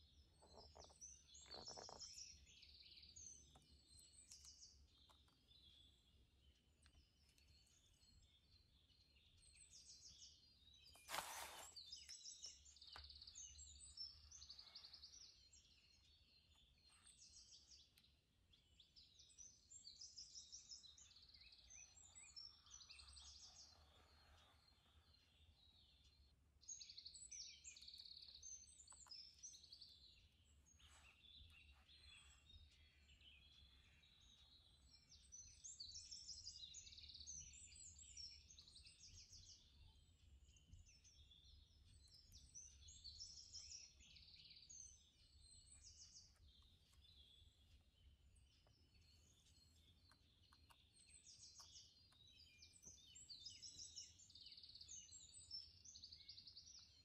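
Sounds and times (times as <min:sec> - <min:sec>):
birds chirping and singing: 0:18.6 - 0:57.0.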